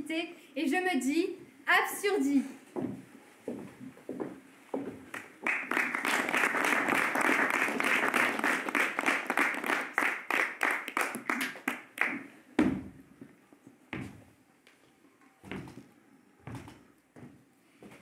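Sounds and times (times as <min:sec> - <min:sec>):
audience applauding: 0:05.1 - 0:12.2.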